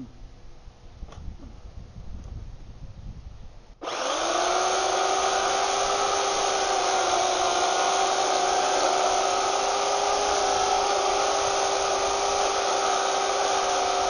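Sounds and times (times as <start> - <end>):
electric chainsaw cutting wood: 3.8 - 14.0.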